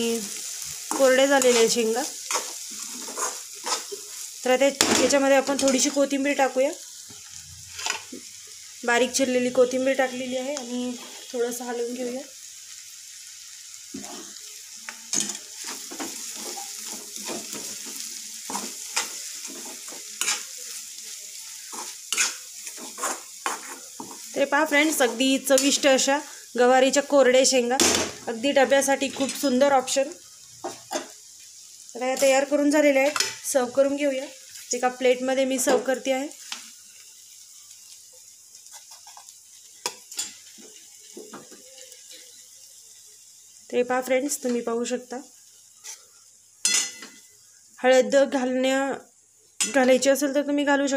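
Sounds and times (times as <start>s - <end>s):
beans sizzling in a pan: 0.0s - 50.9s
faint steady hiss: 0.0s - 50.9s
metal spatula scraping a pan: 0.7s - 4.2s, 10.0s - 11.5s, 13.9s - 14.4s, 15.1s - 26.0s, 38.6s - 42.4s, 45.8s - 47.3s
spatula scraping metal pan: 15.1s - 20.6s, 21.7s - 24.2s.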